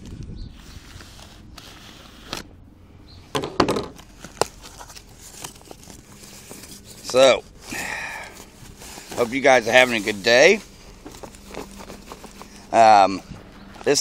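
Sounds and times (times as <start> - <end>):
plastic packaging tearing and crinkling: 4.0 - 7.2, 8.4 - 12.9.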